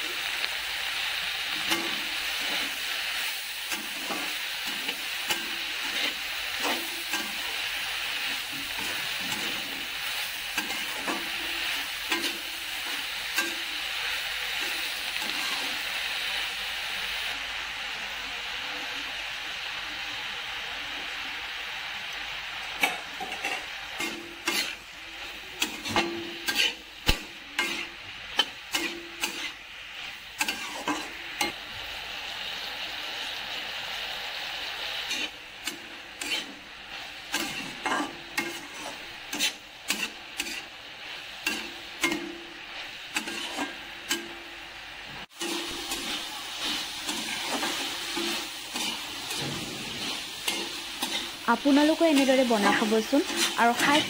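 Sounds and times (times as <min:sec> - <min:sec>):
vegetables sizzling in wok: 0:00.0 - 0:54.0
metal spoon scraping wok: 0:01.5 - 0:16.0, 0:22.8 - 0:31.6, 0:35.0 - 0:44.4, 0:45.3 - 0:54.0.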